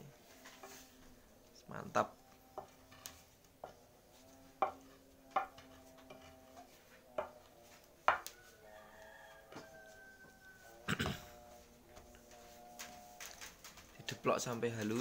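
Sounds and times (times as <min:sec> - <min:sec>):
wooden pestle pounding in stone mortar: 0:04.6 - 0:07.4, 0:08.0 - 0:08.3.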